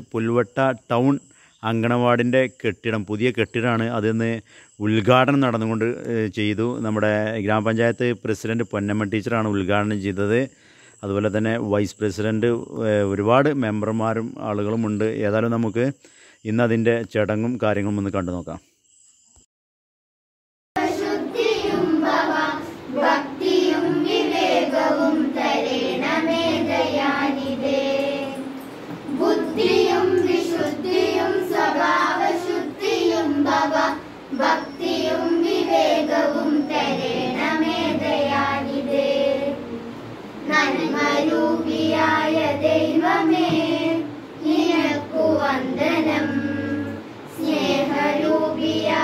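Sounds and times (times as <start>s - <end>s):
girls singing together: 20.8s - 49.0s.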